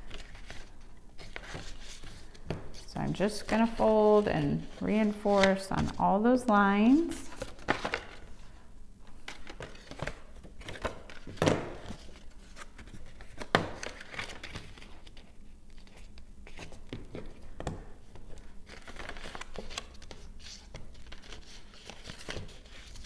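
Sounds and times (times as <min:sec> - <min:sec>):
cardstock crackling and rustling: 0:00.0 - 0:06.1.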